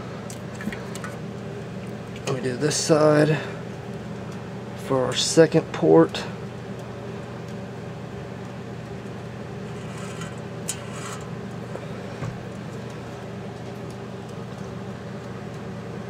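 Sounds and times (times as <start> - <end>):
steady low hum: 0.0 - 16.0
pin scratching a metal can: 9.7 - 11.3.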